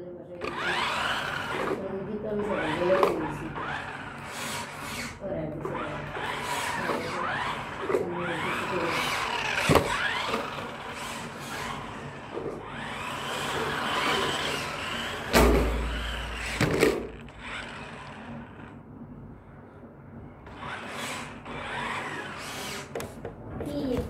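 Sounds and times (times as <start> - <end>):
rc car electric motors whining: 0.4 - 18.9, 20.4 - 23.0
heavy thump: 15.3 - 17.0.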